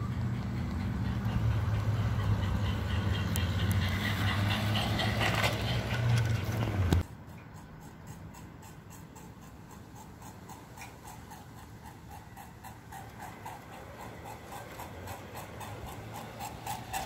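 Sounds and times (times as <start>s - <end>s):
wheels clicking on track: 0.0s - 17.0s
model train motor humming: 11.6s - 17.0s.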